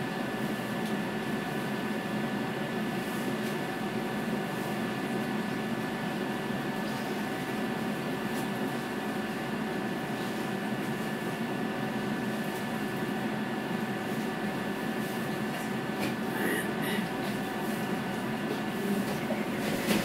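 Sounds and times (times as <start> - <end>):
tram equipment humming: 14.4 - 20.0
steady whine: 16.2 - 20.0.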